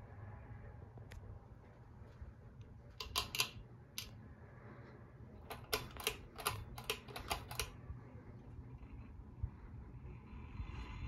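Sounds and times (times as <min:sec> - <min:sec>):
ceiling fan humming: 0:00.0 - 0:11.0
sharp clicks: 0:03.0 - 0:04.2, 0:05.4 - 0:07.8.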